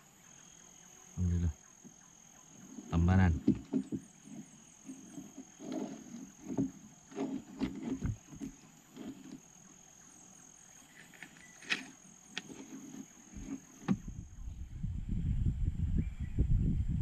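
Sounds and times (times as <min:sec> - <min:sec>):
knocks in wooden boat: 0:03.3 - 0:04.4.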